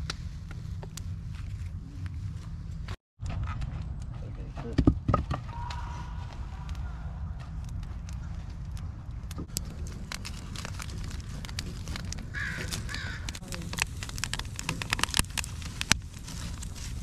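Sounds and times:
wood fire crackling and popping: 0.0 - 4.2, 5.5 - 17.0
crow cawing: 5.5 - 7.4, 12.3 - 13.4.

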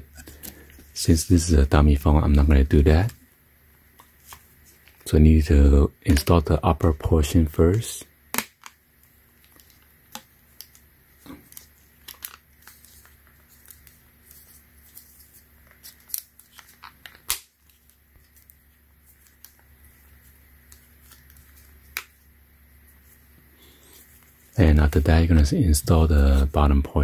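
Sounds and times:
soft handling noise: 9.4 - 27.0.

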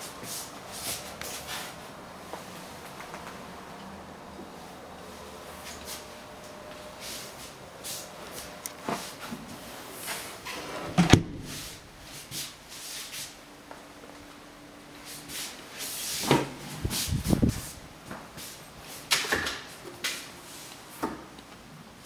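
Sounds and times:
door clunk: 10.9 - 11.8
door knocks and rustles: 10.9 - 11.8.

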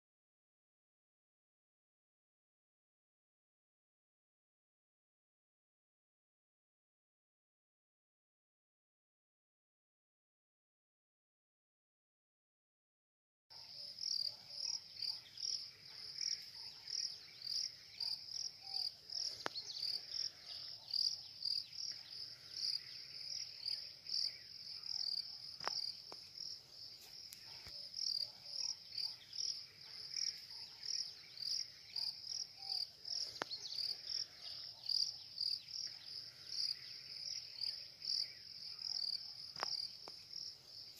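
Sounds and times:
insects chirping: 13.6 - 40.9.

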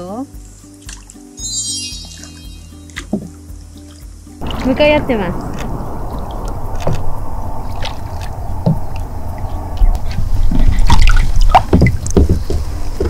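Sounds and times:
steady low rumble: 4.4 - 11.3
paddle strokes in water: 4.4 - 13.0
knocks against kayak hull: 11.5 - 13.0.

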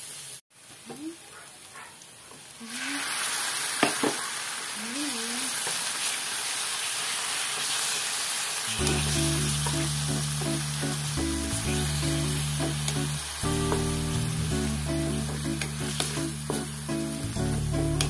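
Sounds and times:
meat sizzling in oil: 0.0 - 0.8, 1.6 - 18.0
background music: 8.8 - 18.0.

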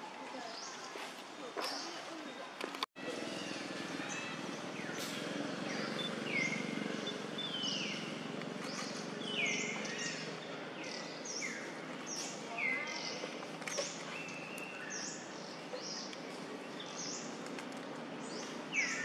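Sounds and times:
birds whistling calls: 3.3 - 16.1, 18.3 - 19.0.

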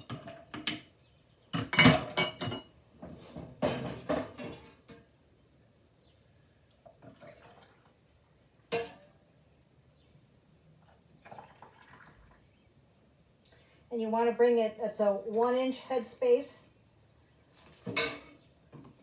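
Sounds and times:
pot and ladle clattering: 0.0 - 0.9, 1.5 - 5.1, 8.7 - 9.2, 17.7 - 18.9.

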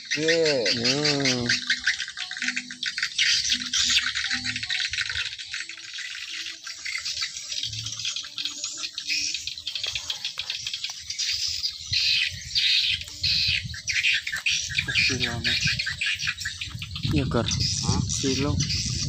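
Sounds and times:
birds chirping: 0.0 - 19.0
wind rumble on microphone: 11.4 - 19.0.

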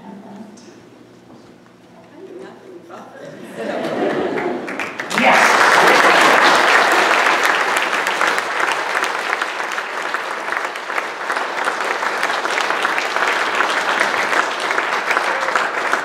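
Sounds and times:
crowd applauding: 3.8 - 16.0.

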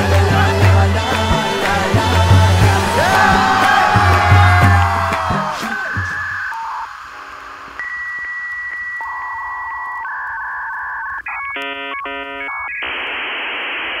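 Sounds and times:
static hiss: 5.2 - 14.0
modem clicks: 7.8 - 12.6
chirping beeps: 7.8 - 12.9
modem answer tone: 7.8 - 13.0.

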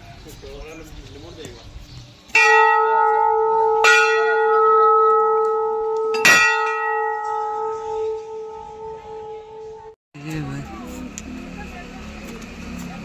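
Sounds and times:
large temple bell ringing: 2.4 - 10.0.

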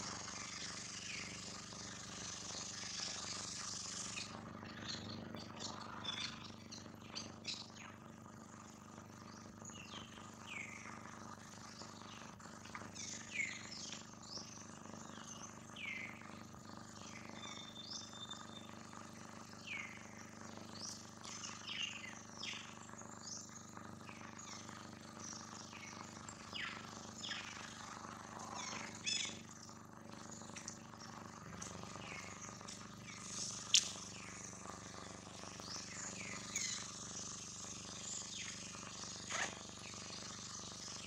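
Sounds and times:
birds chirping: 2.2 - 8.1, 11.7 - 16.3, 19.5 - 41.0.

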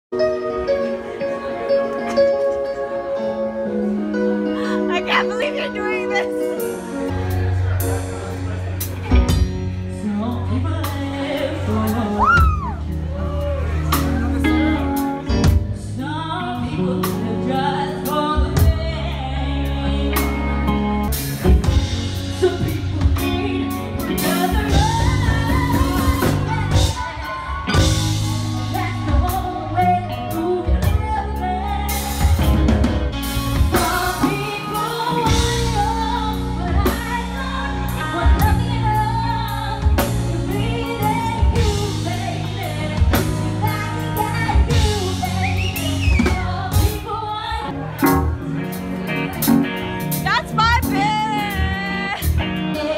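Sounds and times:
electric guitar: 0.2 - 52.9
drum kit: 4.0 - 52.9
woman singing into a microphone: 9.8 - 48.4, 50.1 - 52.9.

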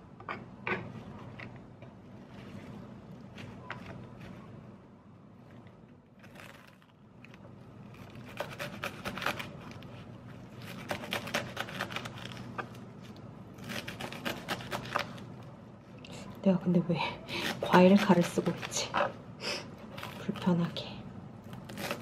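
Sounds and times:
steady low hum: 0.0 - 22.0.

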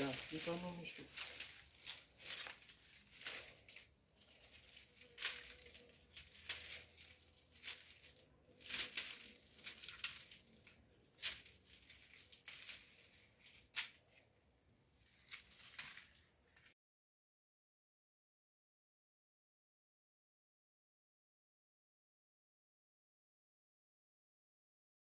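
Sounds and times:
dry bean pods crackling: 0.0 - 16.7.

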